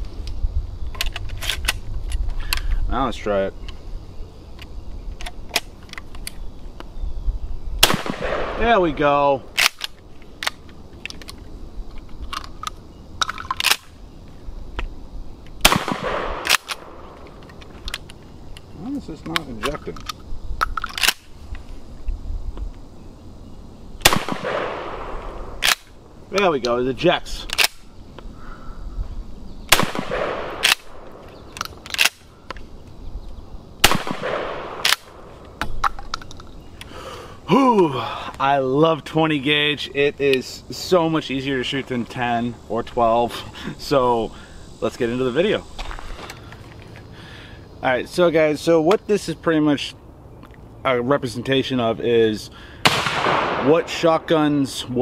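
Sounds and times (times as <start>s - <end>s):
shotgun blast with echo: 7.8s - 8.8s, 15.6s - 17.0s, 24.0s - 25.2s, 29.7s - 31.0s, 33.8s - 34.8s, 52.8s - 53.9s.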